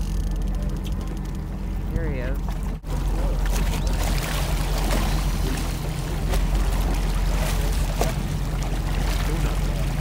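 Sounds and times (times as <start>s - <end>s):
boat engine running: 0.0s - 10.0s
water splashing past hull: 0.0s - 10.0s.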